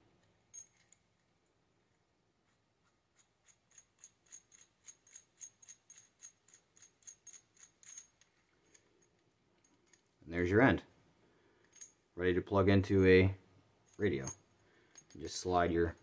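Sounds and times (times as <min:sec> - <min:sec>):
small metallic clicks: 0:00.2 - 0:01.3, 0:02.5 - 0:10.2, 0:11.6 - 0:12.0, 0:13.9 - 0:16.0.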